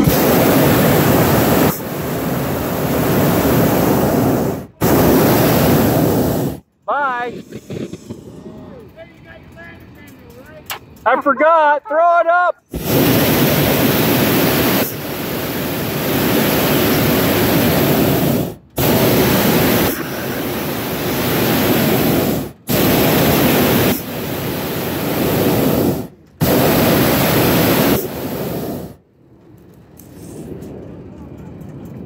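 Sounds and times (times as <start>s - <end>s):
propane burner roaring: 0.0s - 11.1s, 12.6s - 32.0s.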